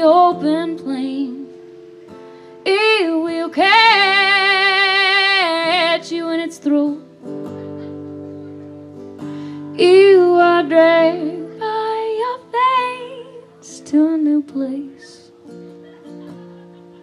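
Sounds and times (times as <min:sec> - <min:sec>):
woman singing with vibrato: 0:00.0 - 0:01.6, 0:02.6 - 0:07.0, 0:09.7 - 0:15.3
guitar accompaniment: 0:00.0 - 0:17.0.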